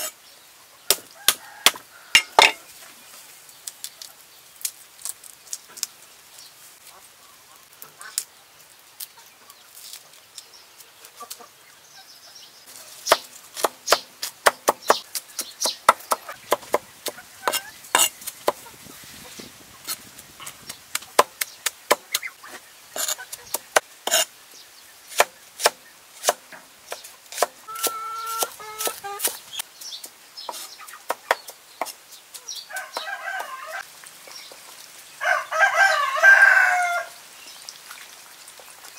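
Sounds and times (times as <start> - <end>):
cleaver chopping on wooden board: 13.1 - 18.6, 20.9 - 22.3, 25.1 - 29.4.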